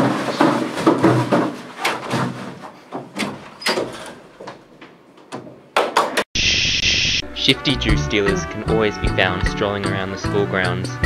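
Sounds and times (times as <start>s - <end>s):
knocks and bumps of person moving: 0.0s - 6.2s.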